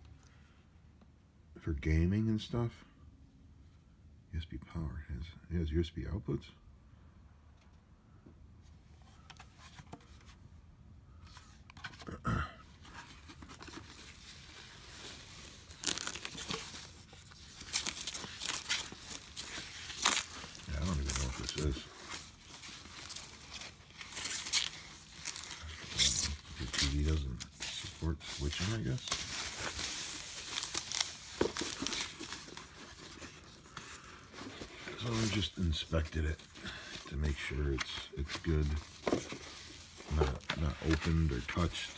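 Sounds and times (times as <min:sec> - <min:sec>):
cardboard box handled: 0:12.8 - 0:35.5, 0:38.2 - 0:41.4
foam wrap rustling: 0:12.8 - 0:41.9.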